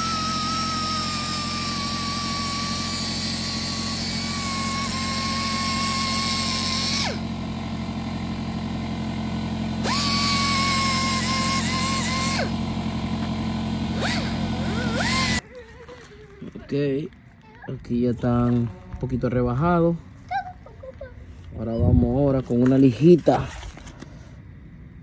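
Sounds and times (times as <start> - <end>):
air sander whining: 0.0 - 16.2
steady low hum: 0.0 - 25.0.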